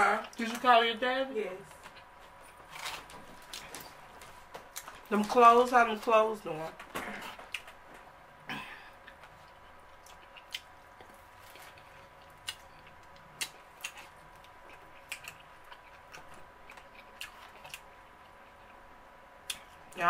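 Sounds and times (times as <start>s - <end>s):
soft chewing: 1.7s - 5.1s, 7.0s - 8.1s, 8.7s - 20.0s.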